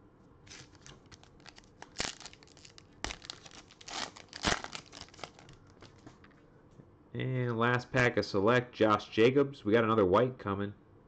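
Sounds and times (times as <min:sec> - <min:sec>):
wrapper tearing and crinkling: 0:00.5 - 0:06.0.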